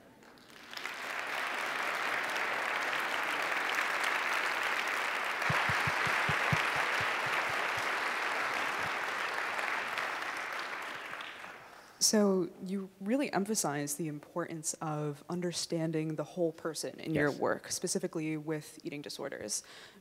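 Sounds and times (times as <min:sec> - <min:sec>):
audience applauding: 0:00.2 - 0:11.8.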